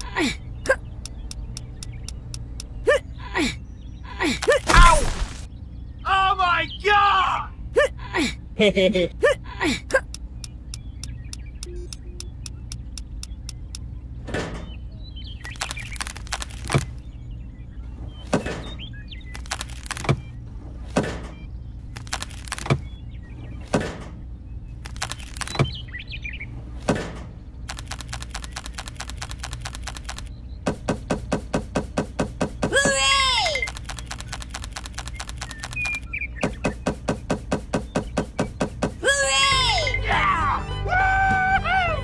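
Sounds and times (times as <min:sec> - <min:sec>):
low steady hum: 0:00.0 - 0:42.0
fast even ticking: 0:15.4 - 0:17.0, 0:24.8 - 0:25.8, 0:27.7 - 0:39.0.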